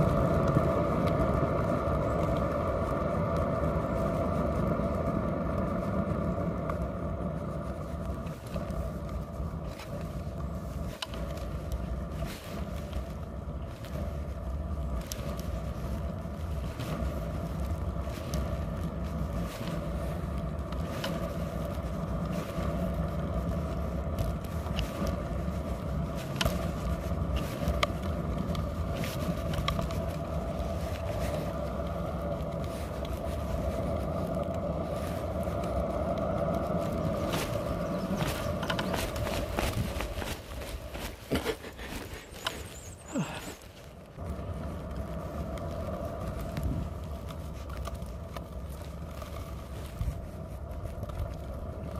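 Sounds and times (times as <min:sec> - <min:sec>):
scooter wheels rolling over asphalt: 0:00.0 - 0:51.9
wheels clicking over bumps: 0:00.0 - 0:51.9.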